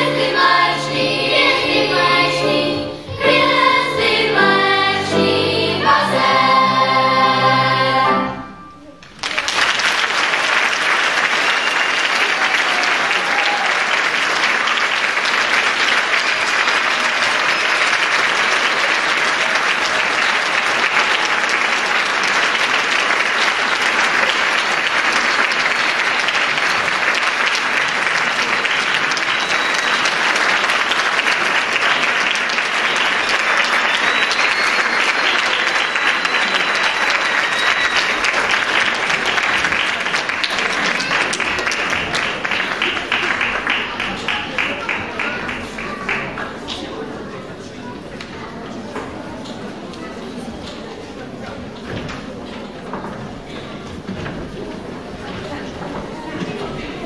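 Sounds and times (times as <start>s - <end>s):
children's choir singing: 0.0s - 9.0s, 14.8s - 46.6s
audience applause: 9.0s - 47.6s.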